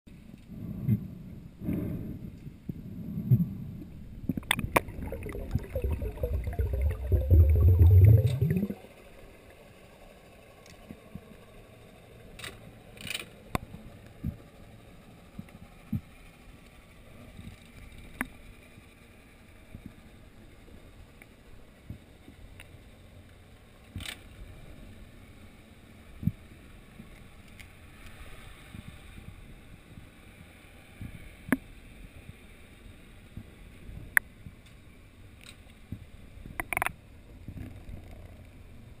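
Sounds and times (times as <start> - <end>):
rushing and bubbling water: 4.4 - 9.5
faint underwater hiss: 4.5 - 10.6.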